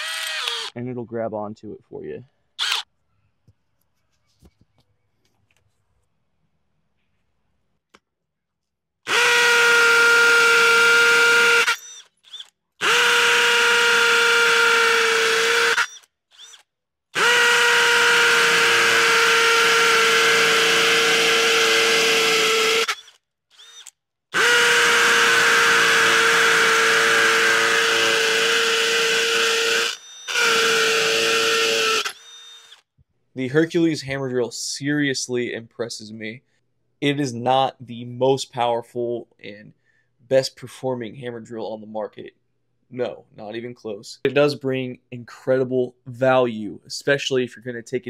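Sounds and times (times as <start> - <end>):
hammer drill boring into concrete: 0.0 - 0.8, 2.6 - 2.9, 9.1 - 32.9.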